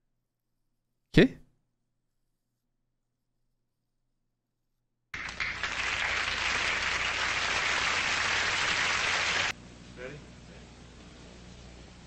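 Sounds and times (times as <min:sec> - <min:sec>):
studio audience applauding: 0:05.2 - 0:09.6.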